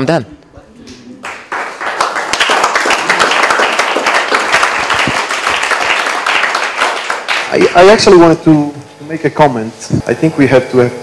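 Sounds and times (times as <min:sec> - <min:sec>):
audience applauding: 0:01.2 - 0:08.2.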